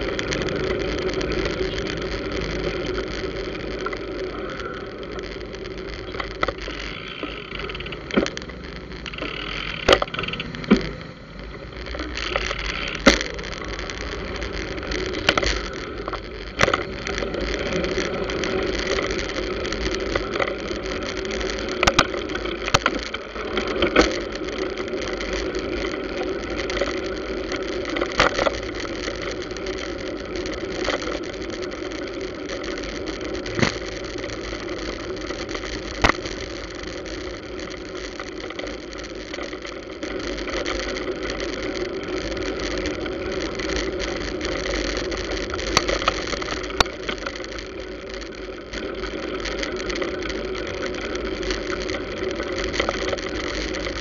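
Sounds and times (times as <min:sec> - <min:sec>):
motorcycle and car engines: 0:00.0 - 0:25.4
sharp clicks and knocks: 0:05.2 - 0:24.4, 0:32.5 - 0:34.6, 0:35.2 - 0:41.6, 0:42.6 - 0:54.0.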